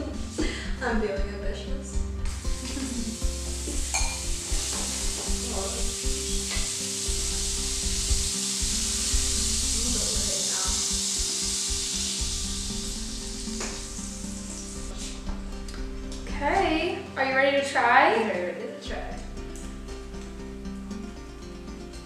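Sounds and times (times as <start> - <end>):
batter sizzling in a frying pan: 2.3 - 15.2.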